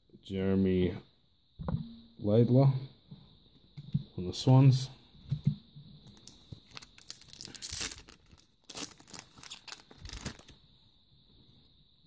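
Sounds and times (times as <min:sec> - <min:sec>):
foil wrapper tearing and crinkling: 0:06.2 - 0:10.6.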